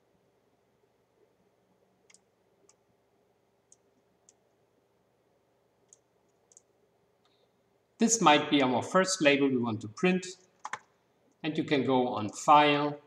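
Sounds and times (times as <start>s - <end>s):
faint computer mouse clicks: 2.0s - 2.8s, 3.7s - 4.5s, 5.8s - 7.4s.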